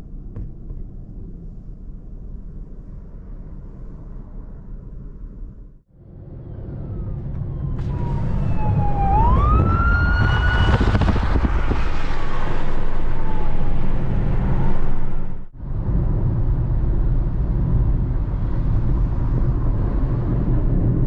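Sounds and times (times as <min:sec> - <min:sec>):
road traffic rumble: 0:00.0 - 0:21.0
emergency siren wailing: 0:06.2 - 0:15.4.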